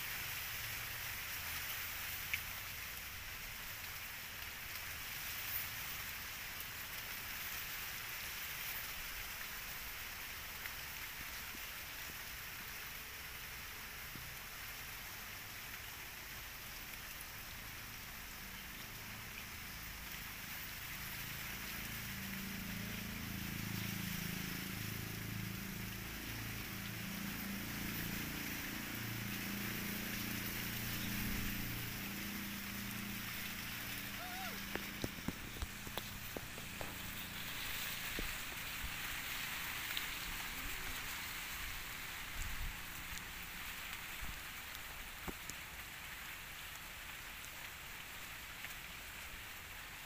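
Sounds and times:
outdoor background hiss: 0.0 - 50.0
low droning hum: 17.2 - 43.0.

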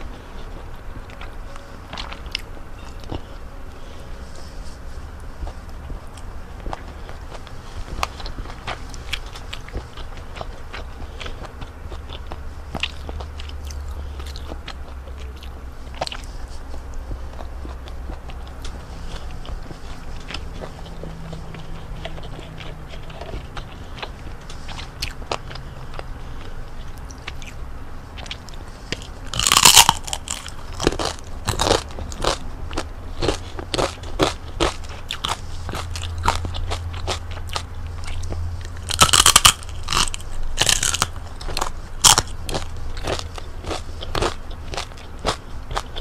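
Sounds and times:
crunchy chewing: 0.0 - 46.0
crunching bites: 28.2 - 46.0.

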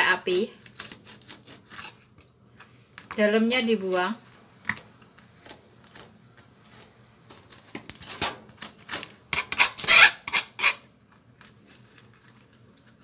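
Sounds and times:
knife scraping on cutting board: 0.8 - 2.0, 8.9 - 10.9.

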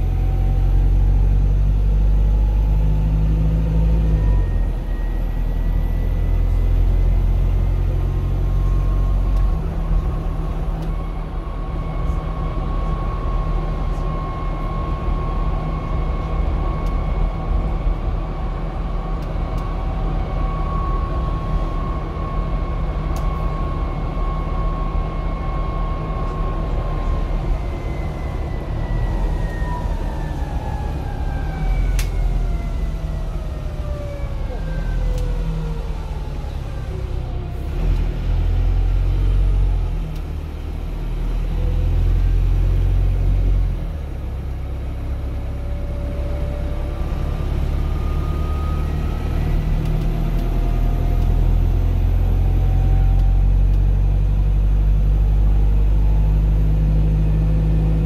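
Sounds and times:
bus drivetrain and road rumble: 0.0 - 58.0
whine gliding down in pitch: 19.5 - 38.0, 45.2 - 58.0
faint rising whine: 44.5 - 58.0.

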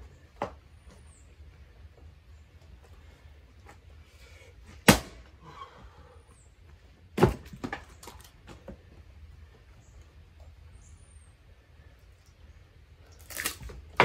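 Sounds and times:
firewood being split: 4.8 - 5.3, 7.1 - 8.6, 13.1 - 14.0.

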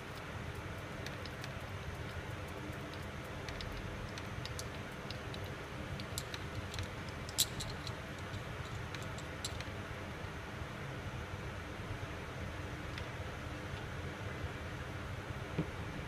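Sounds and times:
steady low hum: 0.0 - 16.0
metallic clicks of wheel parts: 1.0 - 9.7.

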